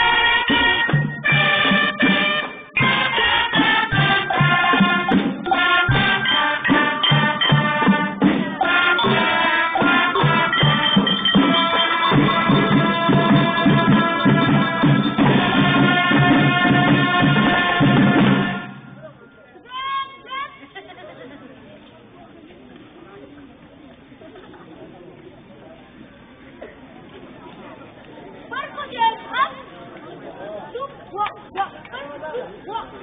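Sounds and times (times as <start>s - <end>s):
drum hits: 0.0s - 19.2s
marching band playing: 0.0s - 20.3s.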